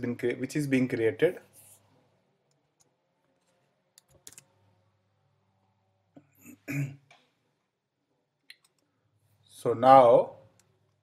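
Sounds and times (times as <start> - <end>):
person clearing throat: 6.4 - 7.1.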